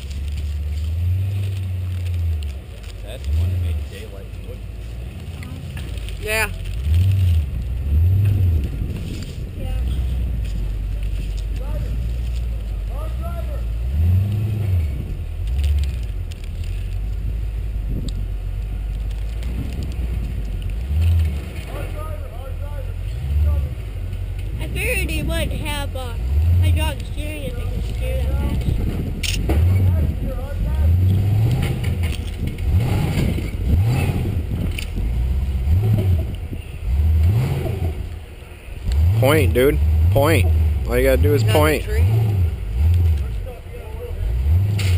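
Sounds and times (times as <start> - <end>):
truck engine rumbling: 0.0 - 44.9.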